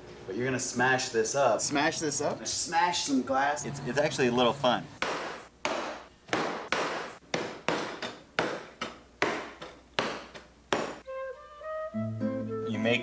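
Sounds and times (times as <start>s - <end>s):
guitar music: 11.0s - 13.0s.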